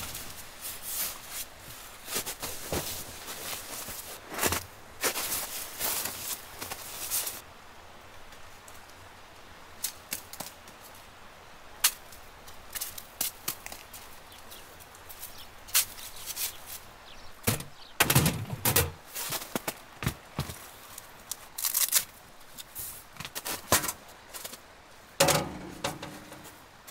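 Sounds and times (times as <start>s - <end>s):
metal box knocking on stand: 25.2s - 26.4s.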